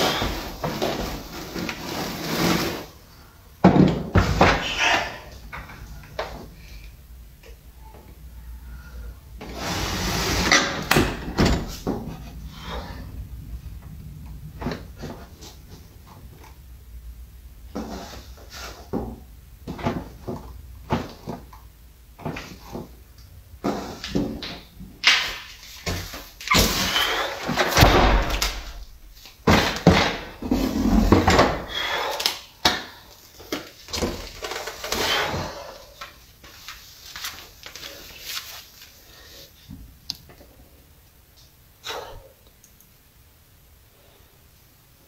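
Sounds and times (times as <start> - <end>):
plastic rustling and scraping: 0.0 - 6.7, 9.4 - 13.1, 33.0 - 39.8.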